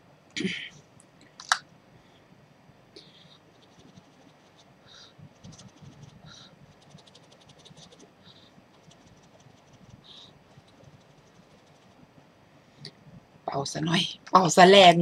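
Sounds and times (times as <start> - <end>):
faint clicking and scratching: 2.9 - 13.3
soft breath puffs: 3.0 - 11.9.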